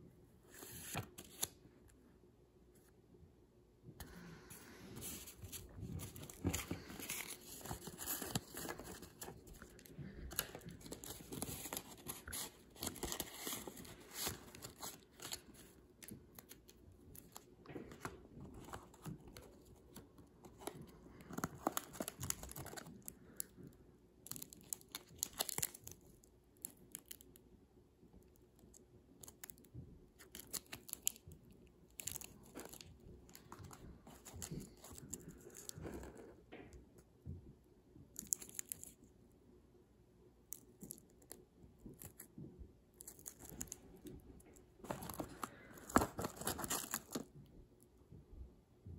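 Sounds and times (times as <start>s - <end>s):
paper and plastic rustling: 4.0s - 23.5s, 32.0s - 36.4s, 43.0s - 47.3s.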